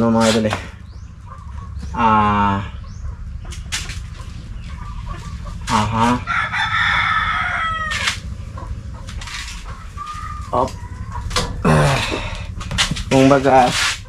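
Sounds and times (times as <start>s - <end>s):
rooster crowing: 5.7s - 8.3s, 9.6s - 11.4s.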